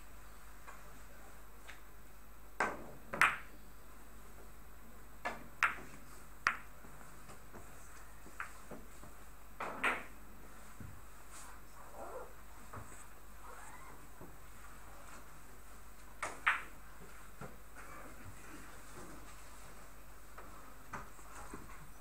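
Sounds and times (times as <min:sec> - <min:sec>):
billiard balls clicking: 0:05.2 - 0:06.7, 0:16.2 - 0:16.8
cue striking ball: 0:09.6 - 0:10.2.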